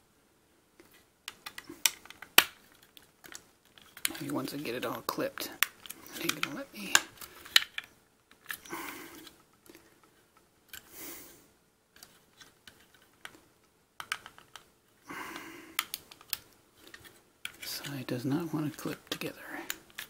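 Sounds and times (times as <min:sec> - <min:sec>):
plastic parts clicking: 0:00.8 - 0:04.7, 0:05.4 - 0:10.1, 0:12.0 - 0:13.4, 0:14.0 - 0:14.7, 0:15.8 - 0:18.0, 0:18.7 - 0:20.0
plastic parts rubbing: 0:00.8 - 0:10.9, 0:11.9 - 0:13.4, 0:14.0 - 0:14.7, 0:15.8 - 0:20.0.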